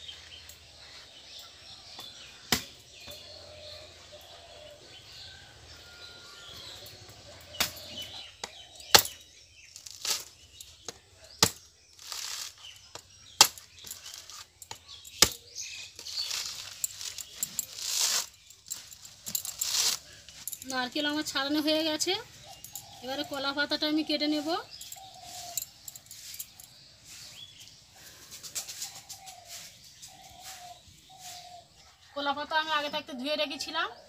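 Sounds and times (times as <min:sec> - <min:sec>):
faint bird chirps: 0:00.0 - 0:34.0
blade chopping coconut husk: 0:07.6 - 0:09.2, 0:09.8 - 0:18.3
husk fibres ripping: 0:09.8 - 0:10.4, 0:11.4 - 0:12.8, 0:16.0 - 0:20.5.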